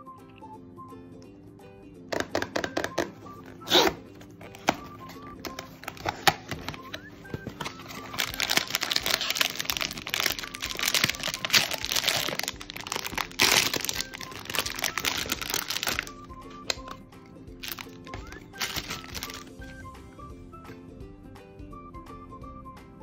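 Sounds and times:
cardboard clicks: 0:02.1 - 0:17.0
plastic and foil crinkling: 0:02.9 - 0:17.0, 0:17.6 - 0:19.8.

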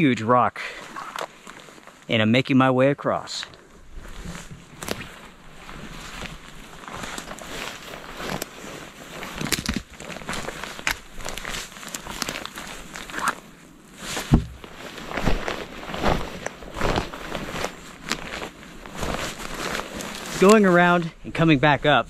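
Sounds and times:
rain jacket rustling: 0:00.7 - 0:02.1, 0:03.6 - 0:22.0
footsteps on forest floor: 0:03.5 - 0:21.1
twigs cracking: 0:04.0 - 0:21.1
heavy thump: 0:14.2 - 0:14.7.

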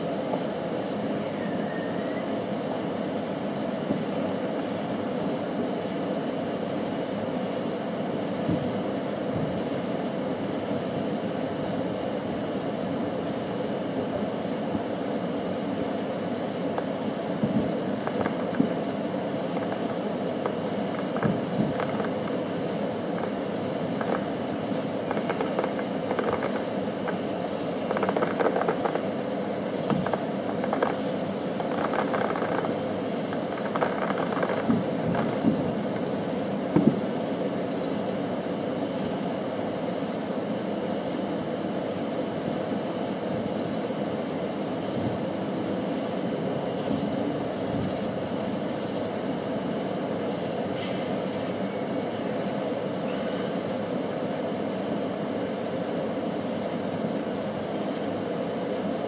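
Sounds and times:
low background hum: 0:00.0 - 0:59.0
distant fireworks popping: 0:08.4 - 0:09.6, 0:16.0 - 0:37.3.

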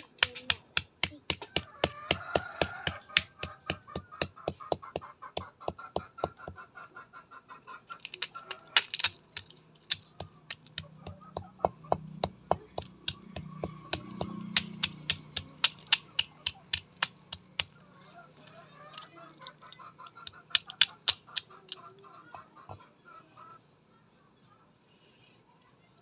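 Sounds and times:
hen pecking at grain: 0:00.0 - 0:06.7.

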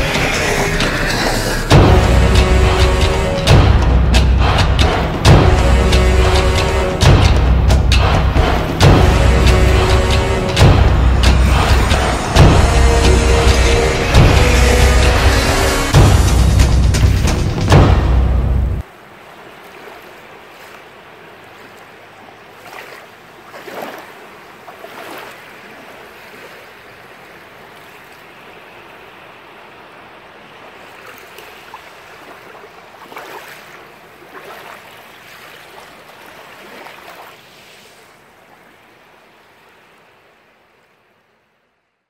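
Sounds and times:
steady rushing noise: 0:00.0 - 0:19.5.

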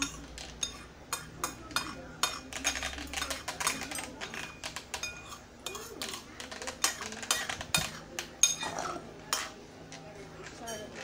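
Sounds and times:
cutlery clinking against bowl: 0:00.0 - 0:11.0.

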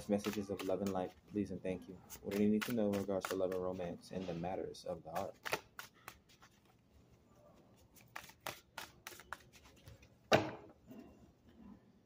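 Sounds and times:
cards shuffling clicks: 0:00.0 - 0:01.0, 0:02.1 - 0:03.8, 0:05.1 - 0:06.7, 0:07.9 - 0:10.1.

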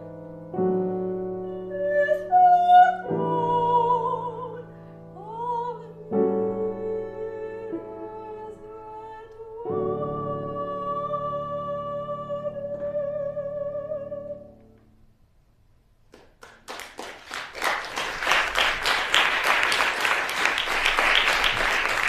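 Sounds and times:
soprano singing with vibrato: 0:01.5 - 0:14.6
audience applause: 0:16.2 - 0:22.0.

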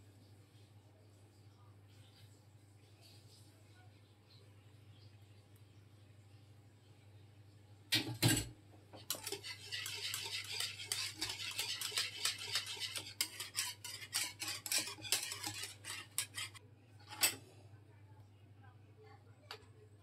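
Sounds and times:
whisk beating in metal bowl: 0:09.0 - 0:16.6
whisk knocking on bowl: 0:09.0 - 0:16.6.

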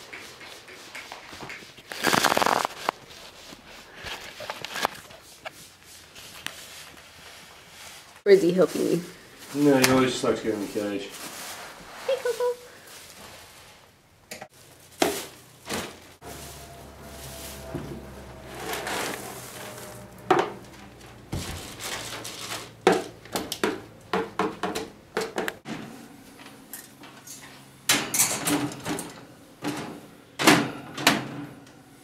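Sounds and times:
scoop raking through litter pellets: 0:16.2 - 0:20.1.

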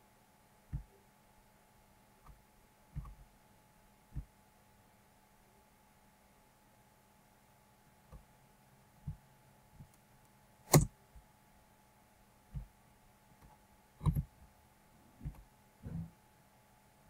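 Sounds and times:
faint electrical hum: 0:00.0 - 0:17.0
computer mouse clicks: 0:13.4 - 0:14.3.

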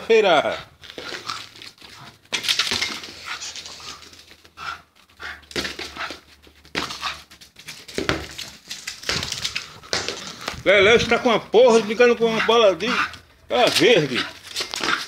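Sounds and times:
scuffling and knocking on concrete: 0:00.8 - 0:04.6, 0:05.4 - 0:12.0, 0:12.9 - 0:15.0
small dog panting: 0:03.2 - 0:07.4, 0:12.2 - 0:13.2.

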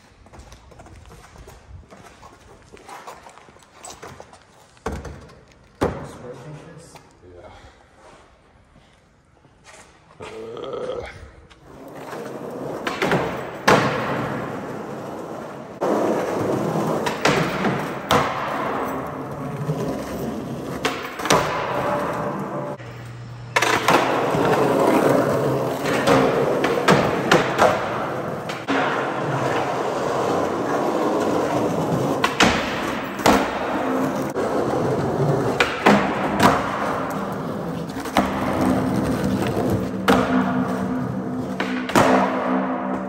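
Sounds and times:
skateboard wheels rolling on concrete: 0:00.0 - 0:07.2, 0:11.0 - 0:43.0
skateboard clattering down: 0:11.6 - 0:22.8, 0:23.6 - 0:43.0
skateboard tail clacks: 0:11.6 - 0:22.8, 0:23.6 - 0:43.0.

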